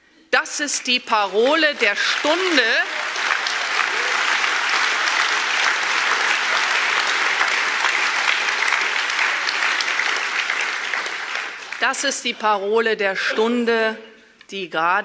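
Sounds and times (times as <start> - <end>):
audience applauding: 0.8 - 12.3.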